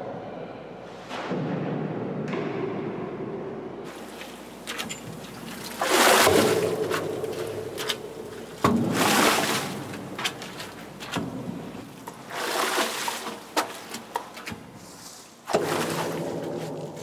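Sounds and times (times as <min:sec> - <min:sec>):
wine splashing in a vat: 0:03.9 - 0:17.0.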